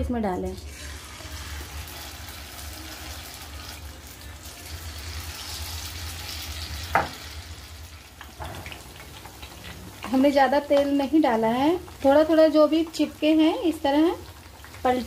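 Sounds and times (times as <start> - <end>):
food frying in hot oil: 0.6 - 15.0.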